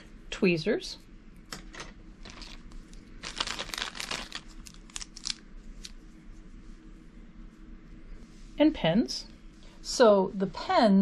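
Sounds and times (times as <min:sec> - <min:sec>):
plastic bag crinkling: 0:02.2 - 0:06.0.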